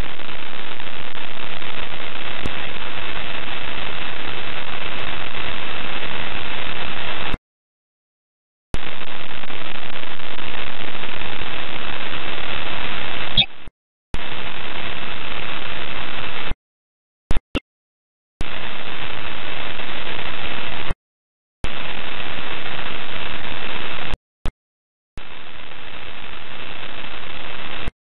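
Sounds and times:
radio static hiss bursts: 0:00.0 - 0:07.4.

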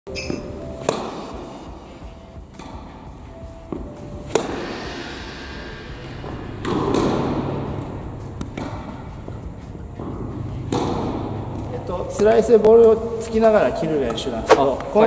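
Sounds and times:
rush of noise: 0:04.0 - 0:12.2.

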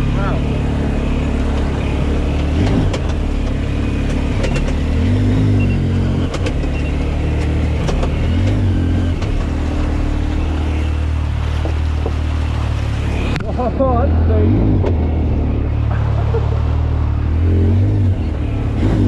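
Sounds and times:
engine revving: 0:00.0 - 0:19.0
sharp knocks and rattles: 0:02.3 - 0:05.0, 0:06.2 - 0:09.9.

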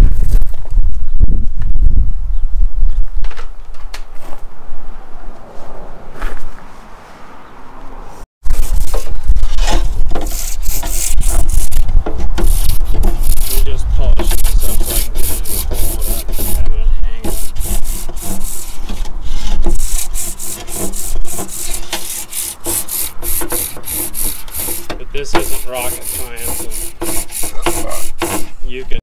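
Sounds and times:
rapid rubbing strokes: 0:08.4 - 0:28.6.

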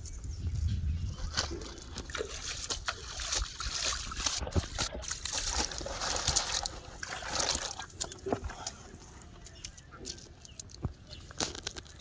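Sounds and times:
water splashing in plastic tub: 0:01.2 - 0:08.9.

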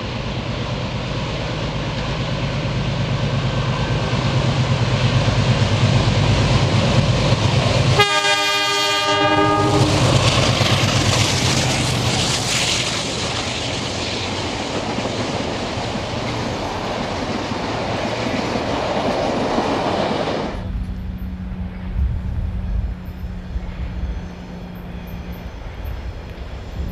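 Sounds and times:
distant steady hum: 0:00.0 - 0:26.9
locomotive engine throb: 0:00.0 - 0:26.9
train clattering past: 0:00.0 - 0:26.9
train horn blast: 0:07.9 - 0:10.2.

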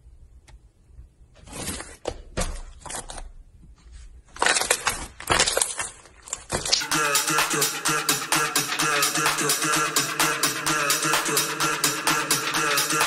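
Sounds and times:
slime squelching and crackling: 0:04.3 - 0:06.8.

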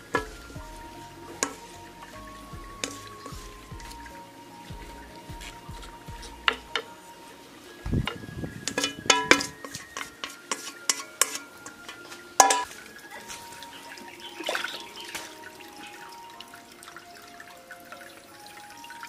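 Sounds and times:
chopsticks scraping a plate: 0:08.8 - 0:12.7.

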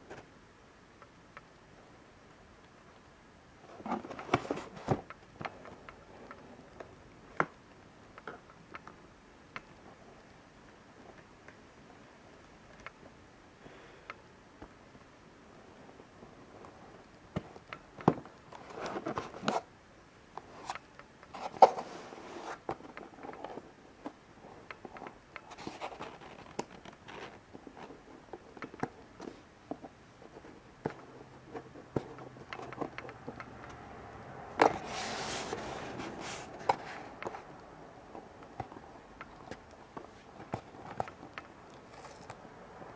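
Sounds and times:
tape scraping and rustling: 0:25.5 - 0:28.1, 0:34.7 - 0:37.4.

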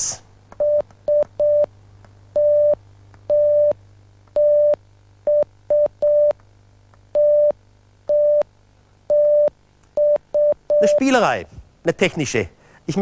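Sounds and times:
morse code beeping tone: 0:09.1 - 0:11.0.

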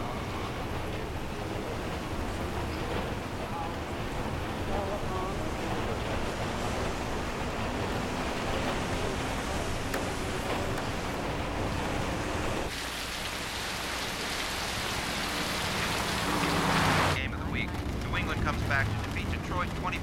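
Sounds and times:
rain: 0:00.0 - 0:20.0
tyres hissing on wet road: 0:04.7 - 0:17.2.

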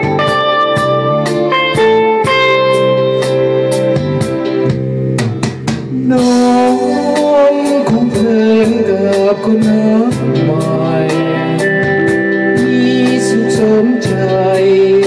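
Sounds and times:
electric guitar: 0:00.0 - 0:15.0
keyboard: 0:00.0 - 0:15.0
steady drum beat: 0:00.0 - 0:15.0
man singing: 0:05.9 - 0:15.0.

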